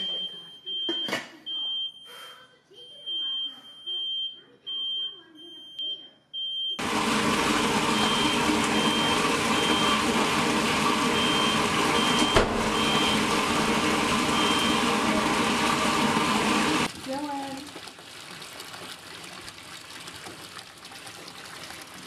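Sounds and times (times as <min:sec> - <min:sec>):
smoke alarm beeping: 0:00.0 - 0:06.9, 0:07.8 - 0:16.1
faucet gushing into tub: 0:06.8 - 0:22.0.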